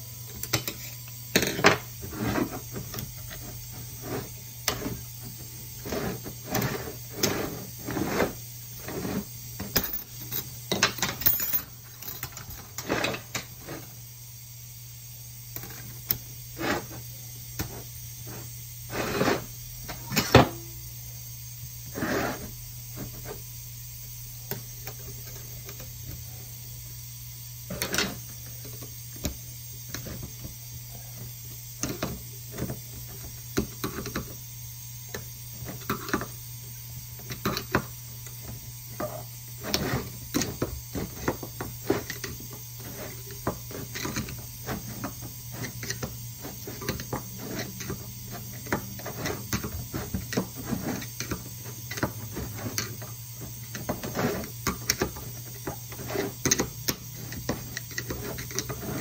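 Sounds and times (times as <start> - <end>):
metal tools clicking and scraping: 0.3 - 5.0, 9.1 - 13.8.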